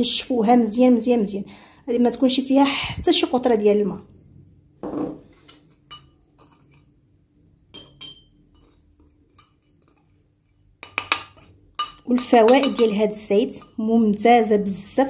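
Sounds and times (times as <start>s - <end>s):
spoon clinking on ceramic bowl: 5.4s - 6.2s, 7.7s - 9.6s, 10.8s - 13.8s
spoon knocking on glass jar: 7.8s - 8.7s.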